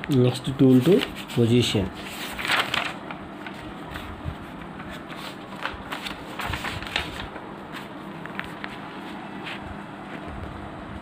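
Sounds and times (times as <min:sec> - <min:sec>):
notebook page rustling: 0:00.5 - 0:10.3.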